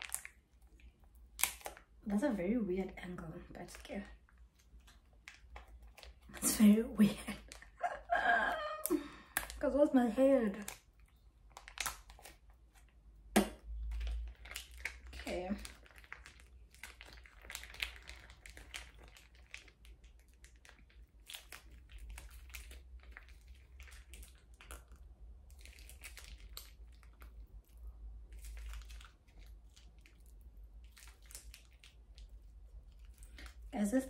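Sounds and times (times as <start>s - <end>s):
plastic sachets crinkling: 0.0s - 34.0s.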